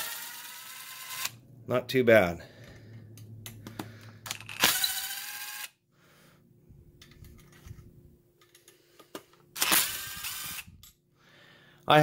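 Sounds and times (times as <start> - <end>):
impact driver running: 0.0 - 1.3, 9.6 - 10.7.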